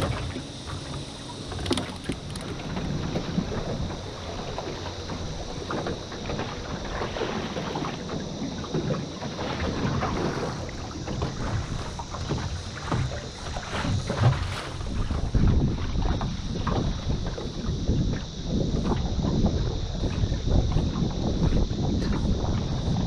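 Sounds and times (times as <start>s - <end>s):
water slapping boat hull: 0.0s - 23.0s
wind buffeting microphone: 0.0s - 23.0s.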